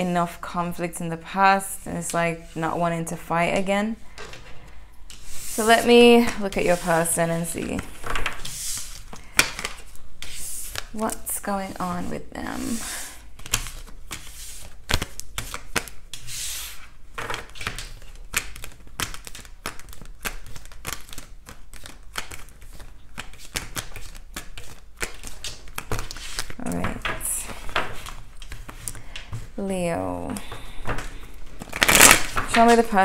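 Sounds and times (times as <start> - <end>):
cards clicking and snapping: 8.1 - 10.9, 13.4 - 16.3, 17.2 - 29.4, 30.3 - 32.9
cards riffling: 17.3 - 26.6, 30.4 - 33.0.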